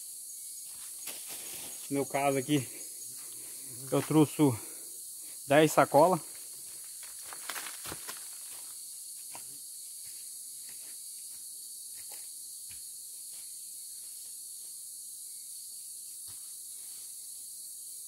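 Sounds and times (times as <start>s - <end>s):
insects droning: 0.0s - 18.0s
footsteps in dry leaves: 1.0s - 1.9s, 6.9s - 8.8s.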